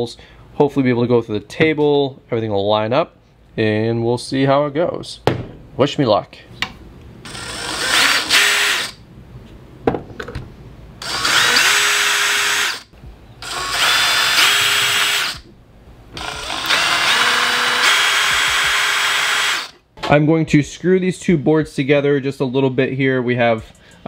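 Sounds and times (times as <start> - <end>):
cordless drill boring into wood: 7.3 - 9.0, 11.0 - 15.5, 16.2 - 19.8.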